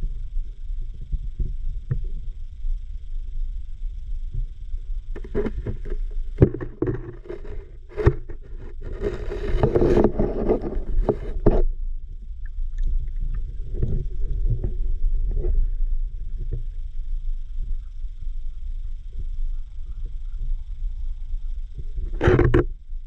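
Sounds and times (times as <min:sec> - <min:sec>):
low underwater rumble: 0:00.0 - 0:23.0
camera housing scraping riverbed: 0:05.2 - 0:11.7.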